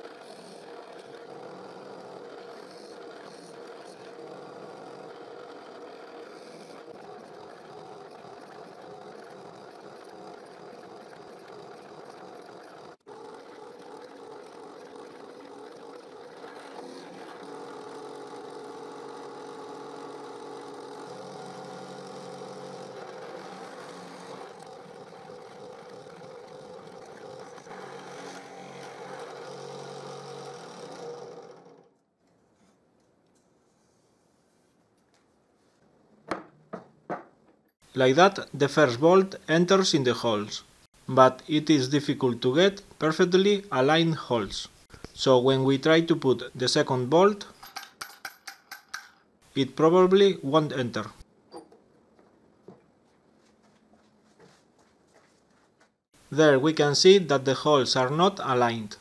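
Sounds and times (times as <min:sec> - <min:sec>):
drill press boring wood: 0:00.0 - 0:32.0.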